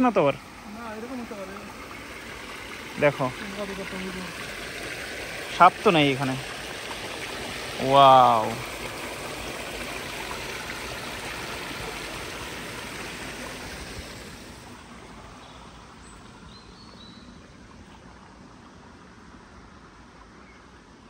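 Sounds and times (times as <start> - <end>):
stream splashing over stones: 0.0 - 16.6.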